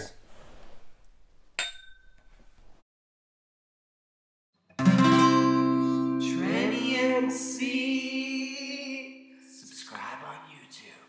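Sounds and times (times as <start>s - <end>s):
strummed guitar chord: 4.8s - 7.3s.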